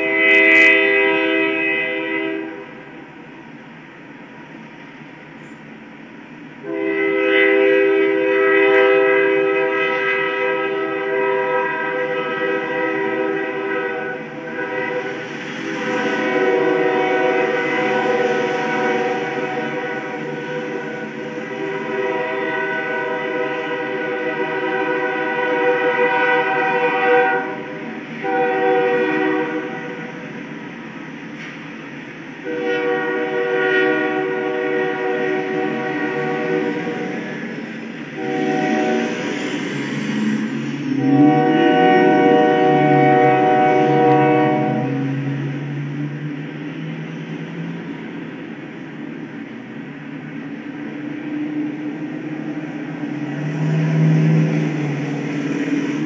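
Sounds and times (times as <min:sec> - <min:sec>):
locomotive air horn blasts: 0:00.0 - 0:02.9, 0:06.6 - 0:30.2, 0:32.4 - 0:37.3, 0:38.1 - 0:45.5
freight train rumble: 0:00.0 - 0:56.0.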